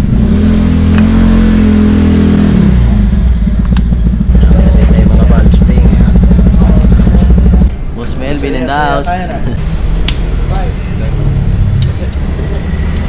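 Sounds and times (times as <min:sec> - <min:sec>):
motorcycle engine running: 0:00.0 - 0:07.7.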